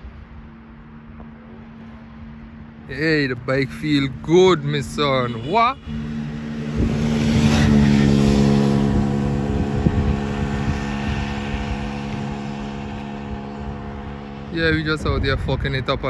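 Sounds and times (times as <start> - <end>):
scooter riding past: 5.8 - 13.1.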